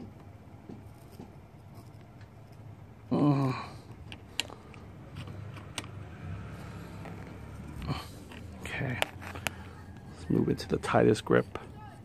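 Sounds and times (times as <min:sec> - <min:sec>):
murmured voice: 0:03.1 - 0:03.8.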